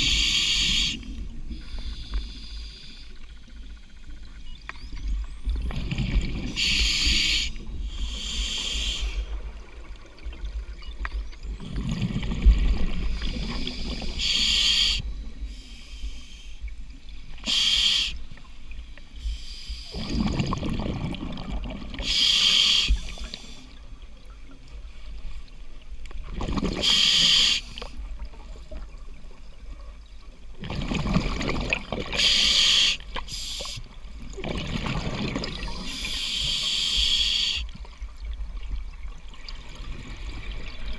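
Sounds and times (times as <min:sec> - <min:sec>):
regulator inhalation hiss: 0:00.0 - 0:03.2, 0:06.5 - 0:09.4, 0:13.4 - 0:16.6, 0:17.4 - 0:18.3, 0:19.2 - 0:20.0, 0:22.0 - 0:23.8, 0:26.8 - 0:28.0, 0:32.2 - 0:34.0, 0:35.8 - 0:37.8
exhaled bubbles: 0:11.5 - 0:14.2, 0:19.9 - 0:22.1, 0:26.2 - 0:27.0, 0:30.6 - 0:32.3, 0:34.2 - 0:36.6.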